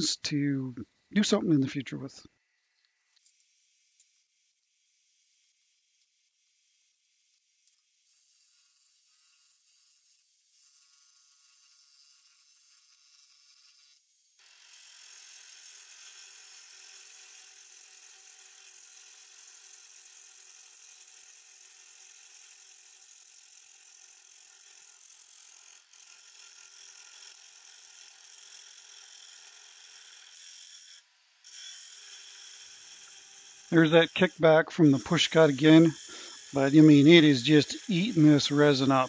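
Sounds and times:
lathe tool cutting wood hiss: 29.9 - 39.0.

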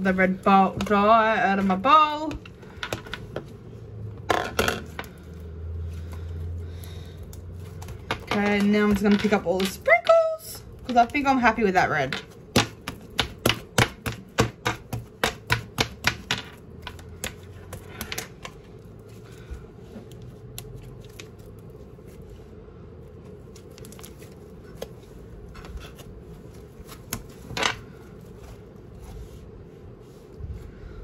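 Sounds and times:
fingertips tapping on tabletop: 12.1 - 18.6.

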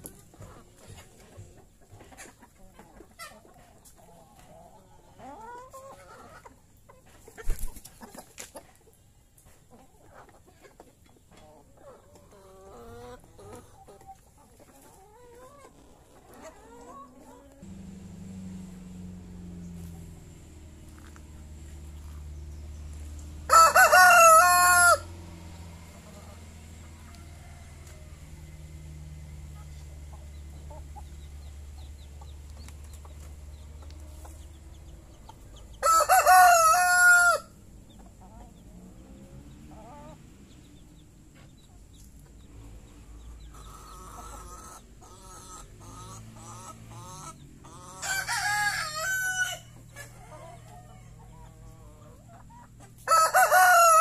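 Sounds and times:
chickens clucking: 0.0 - 54.0
rooster crowing: 23.4 - 25.2, 26.9 - 28.4, 35.8 - 37.6, 48.0 - 52.0, 53.0 - 54.0.

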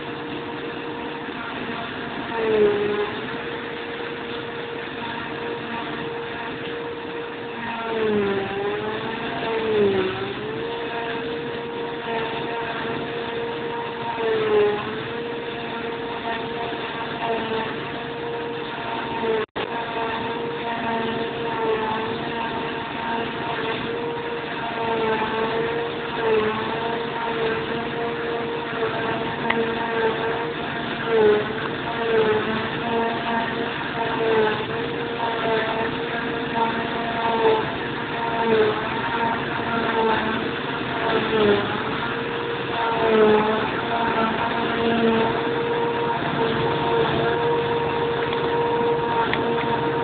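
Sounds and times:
forage harvester whine: 0.0 - 50.0
harvester engine running: 28.8 - 50.0.

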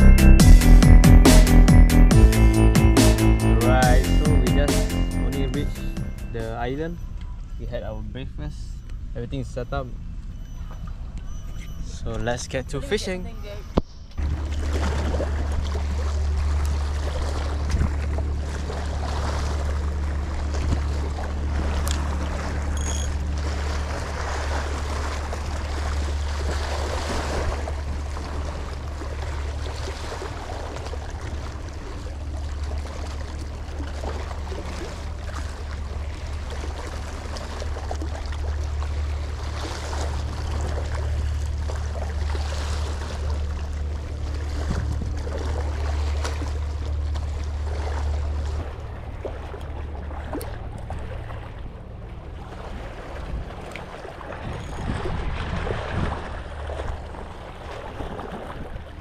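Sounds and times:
low hum: 0.0 - 59.0
waves lapping against rocks: 13.0 - 59.0.

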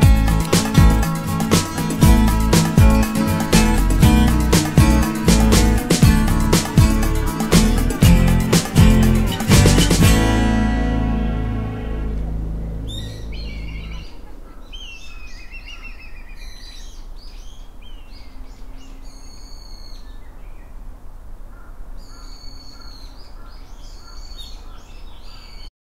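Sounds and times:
low steady rumble: 10.0 - 14.5
small birds singing: 12.6 - 20.8, 21.5 - 25.7.

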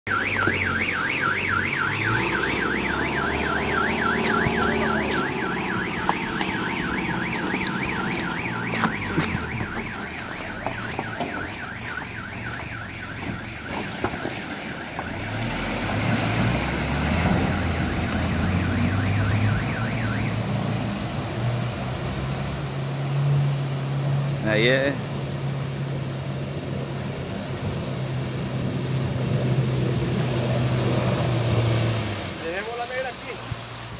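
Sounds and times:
warbling siren-like tone: 0.1 - 21.0
rushing splashing water: 0.1 - 33.9
pickup engine running: 0.2 - 15.3.

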